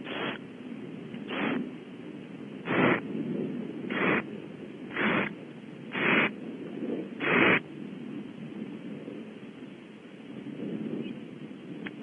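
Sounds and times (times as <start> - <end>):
owl chicks hissing calls: 0.0 - 0.4, 1.3 - 1.6, 2.7 - 3.0, 3.9 - 4.2, 4.9 - 5.3, 5.9 - 6.3, 7.2 - 7.6.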